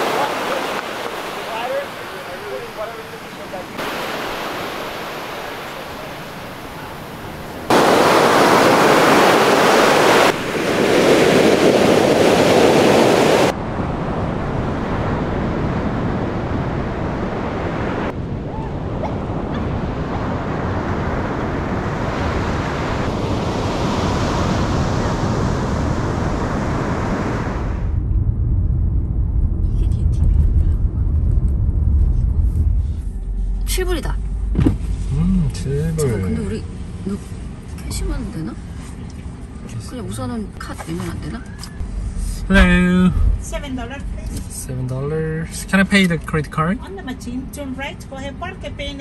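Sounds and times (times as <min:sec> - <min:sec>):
ocean surf breaking on beach: 0:00.0 - 0:27.9.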